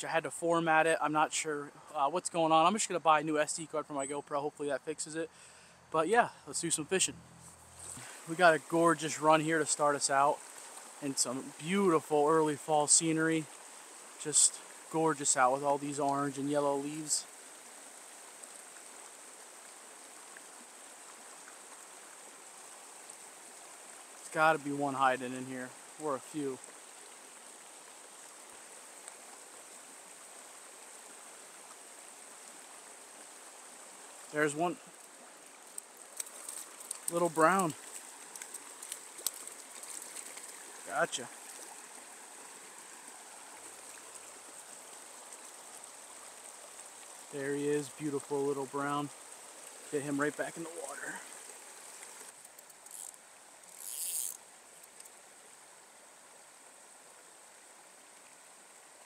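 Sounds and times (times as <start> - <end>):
stream flowing over riffle: 0.0 - 59.0
short water splashes: 7.8 - 17.2, 34.2 - 45.4.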